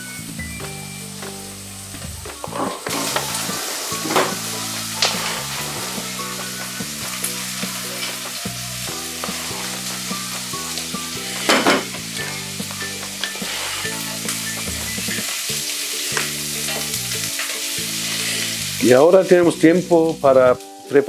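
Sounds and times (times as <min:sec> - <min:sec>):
onions sizzling in oil: 0:00.0 - 0:21.0
wooden spoon stirring in pot: 0:04.0 - 0:14.7.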